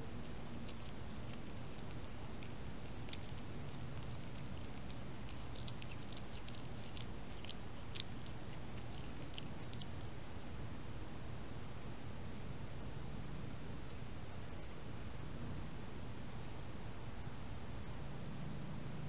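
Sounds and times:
animal chewing clicks: 0:00.0 - 0:10.2.

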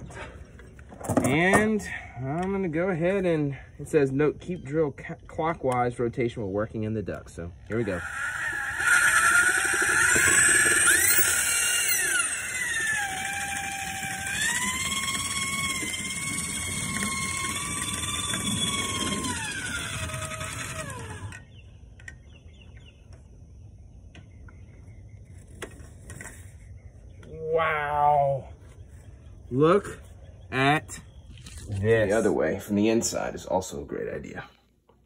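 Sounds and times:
drill motor whine: 0:07.8 - 0:21.6.

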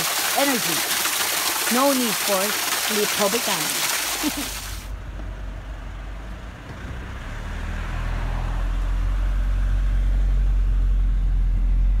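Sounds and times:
car road and engine rumble: 0:04.8 - 0:12.0.

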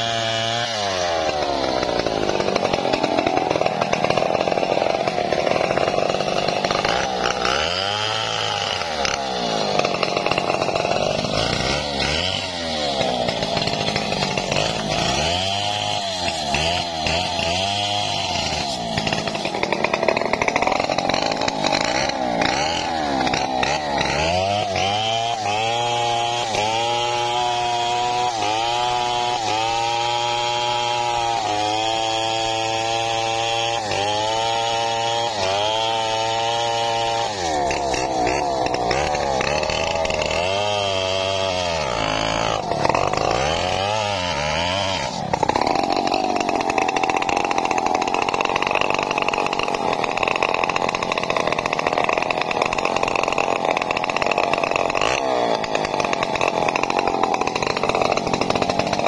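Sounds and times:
chainsaw cutting through log: 0:00.0 - 0:59.0.

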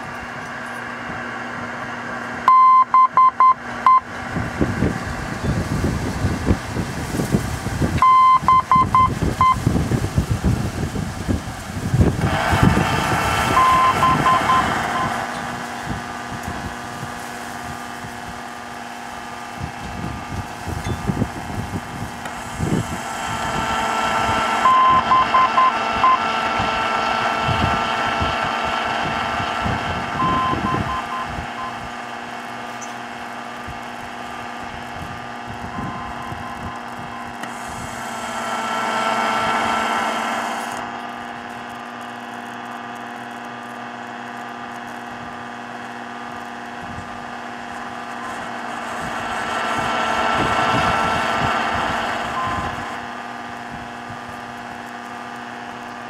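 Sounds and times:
low hum: 0:00.0 - 0:56.0
high beeps: 0:02.5 - 0:04.1, 0:08.0 - 0:09.6, 0:13.5 - 0:15.2, 0:24.6 - 0:26.2, 0:30.2 - 0:31.8, 0:52.3 - 0:52.9
radio static hiss: 0:05.2 - 0:56.0.

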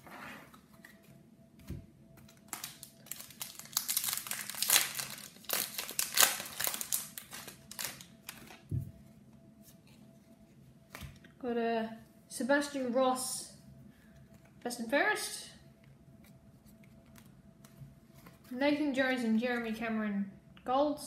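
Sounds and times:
wrapper tearing and crinkling: 0:02.3 - 0:08.7.

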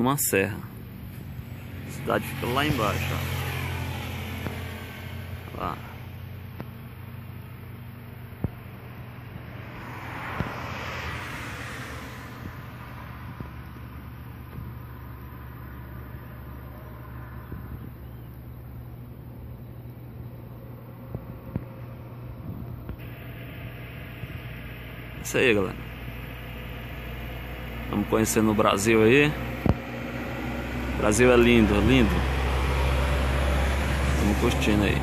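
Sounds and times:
steady low hum: 0:00.0 - 0:35.0
rushing swell: 0:00.8 - 0:06.4, 0:09.1 - 0:14.1, 0:23.0 - 0:35.0.

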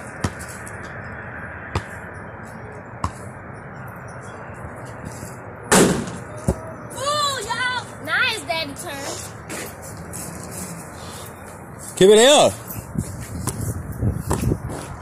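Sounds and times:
basketball bouncing on hard ground: 0:00.0 - 0:02.2, 0:02.9 - 0:03.4, 0:13.1 - 0:15.0.

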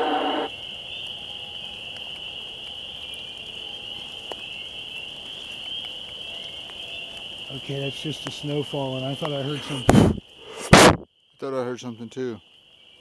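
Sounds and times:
high-pitched whine: 0:00.0 - 0:00.5
recorded whoop call: 0:00.0 - 0:00.5
faint ticks: 0:09.1 - 0:09.4.

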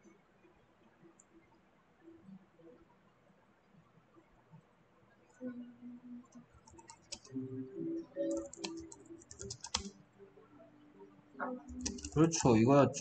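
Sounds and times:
keyboard key clicks: 0:08.3 - 0:09.9, 0:11.8 - 0:12.2.

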